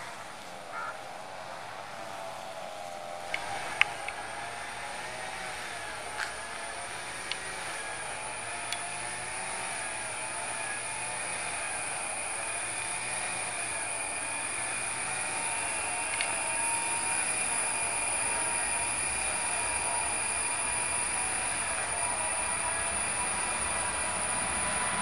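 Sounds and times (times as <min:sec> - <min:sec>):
distant jet engines whining: 0:00.0 - 0:25.0
faint clicks: 0:03.2 - 0:04.9, 0:06.1 - 0:25.0.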